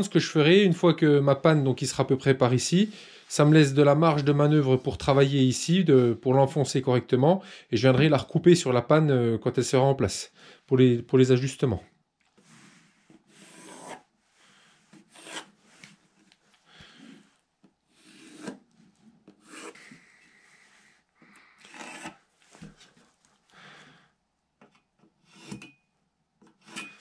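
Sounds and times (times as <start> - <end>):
pencil scratching on wood: 13.0 - 14.1, 14.9 - 15.9, 17.9 - 18.6, 19.3 - 20.0.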